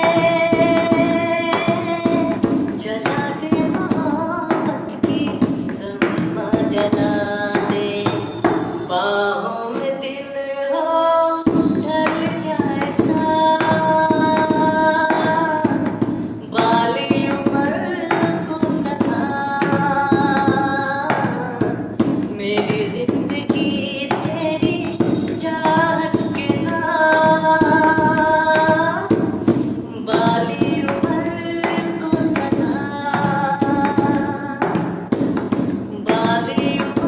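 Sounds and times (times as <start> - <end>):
person singing long held notes: 0.0 - 37.0.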